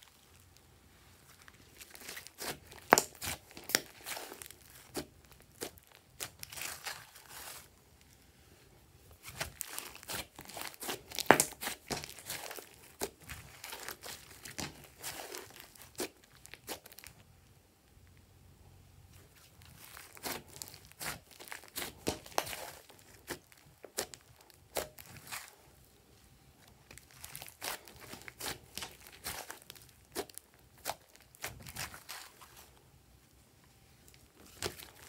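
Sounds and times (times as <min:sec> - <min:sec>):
slime crackling and popping: 0:01.3 - 0:07.7, 0:09.2 - 0:17.2, 0:19.5 - 0:25.6, 0:26.8 - 0:32.7, 0:34.1 - 0:35.0.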